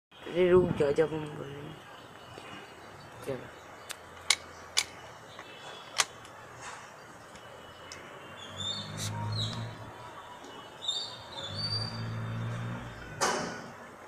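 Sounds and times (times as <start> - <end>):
high chirping: 7.0 - 13.2
low hum: 8.4 - 10.0.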